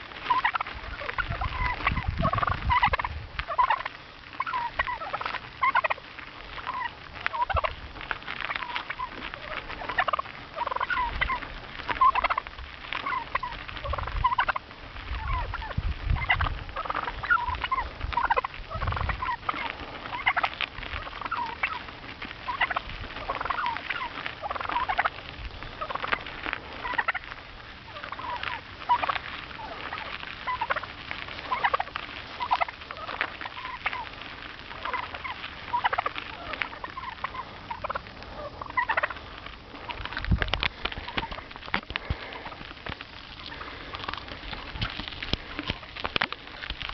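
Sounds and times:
wild turkeys calling: 0.0 - 46.9.

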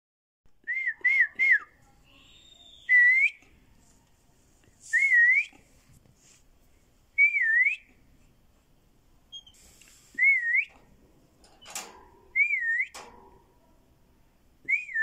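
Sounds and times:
whistled notes: 10.2 - 10.8, 12.4 - 13.0, 14.7 - 15.0.

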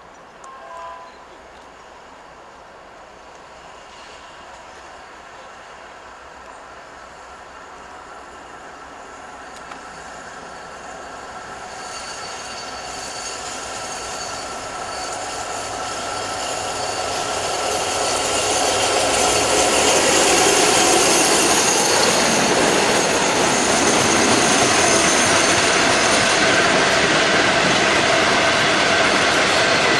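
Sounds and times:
diesel locomotive engine passing: 0.5 - 29.9
wheels rumbling on rails: 1.1 - 29.9
thin high whining tones: 9.9 - 29.8.

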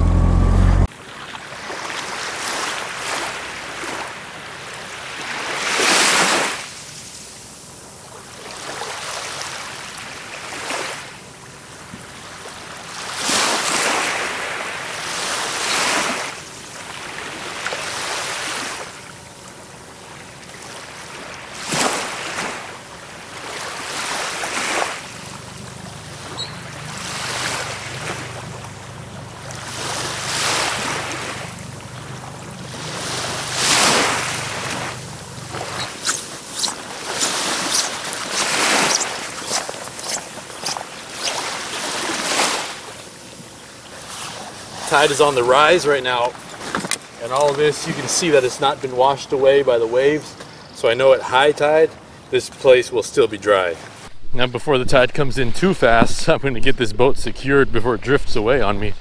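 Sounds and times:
low hum: 0.0 - 0.9, 25.0 - 37.1
small waves washing onto sand: 1.1 - 50.5.

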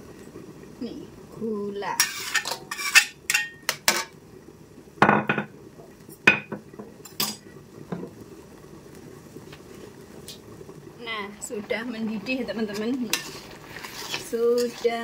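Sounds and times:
metal spatula scraping a plate: 2.0 - 4.1, 12.8 - 15.0
plate and spatula clattering: 2.0 - 4.1, 5.0 - 5.5, 6.3 - 8.0
knocks on tiled counter: 5.0 - 5.5.

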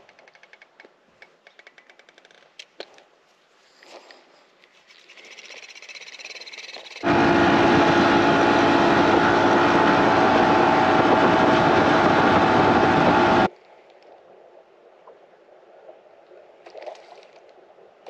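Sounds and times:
outboard engine drone: 7.0 - 13.5
wind rush: 7.0 - 13.5.

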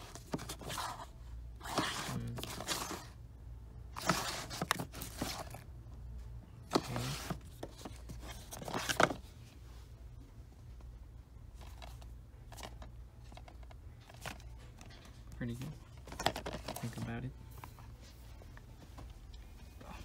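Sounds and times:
plastic cases scraping together: 6.7 - 9.2.

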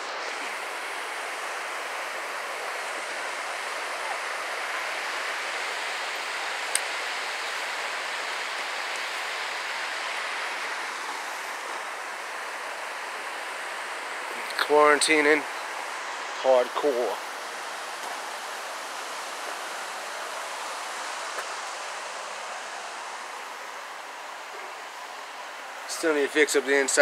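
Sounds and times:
creek flowing over rocks: 0.0 - 27.0.

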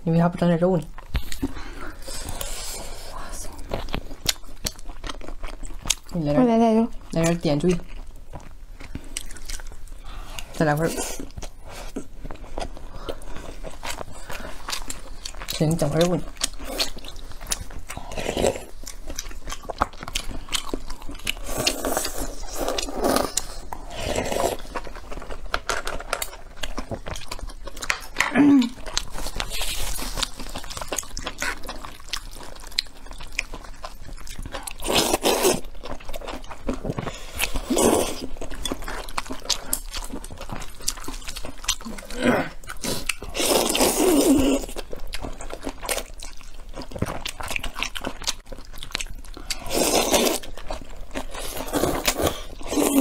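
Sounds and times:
chewing with wet clicks: 3.2 - 6.4, 7.0 - 23.8, 24.6 - 43.8, 44.4 - 53.0
slurping noodles: 21.4 - 24.7, 41.9 - 44.7, 49.6 - 50.5.

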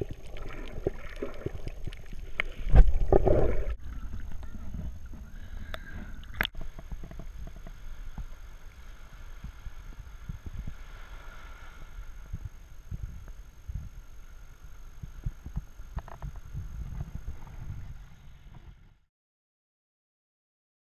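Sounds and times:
faint surf: 0.0 - 19.1.

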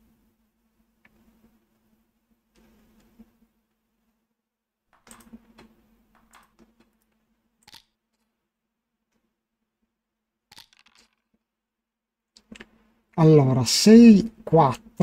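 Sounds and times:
mouse and keyboard clicks: 7.6 - 7.9.

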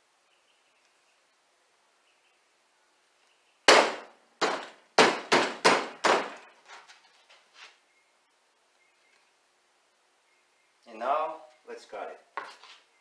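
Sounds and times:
sharp knocks by hand: 3.7 - 6.4.

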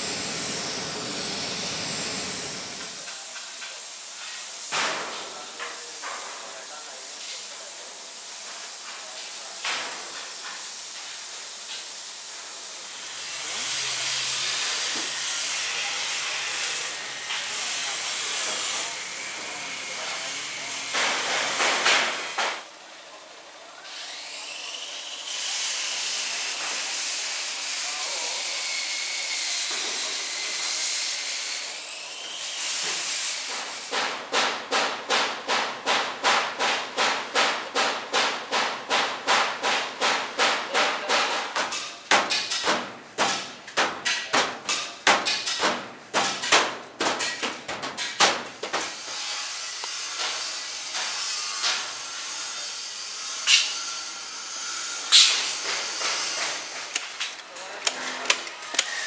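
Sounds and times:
paint spray gun hissing: 0.0 - 4.7, 55.1 - 55.6.

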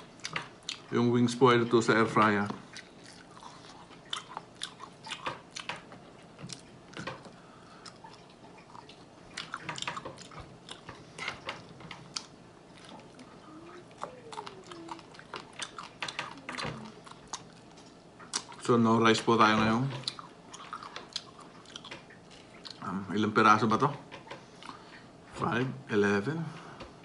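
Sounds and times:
biting and chewing: 2.5 - 18.7, 19.5 - 22.9.

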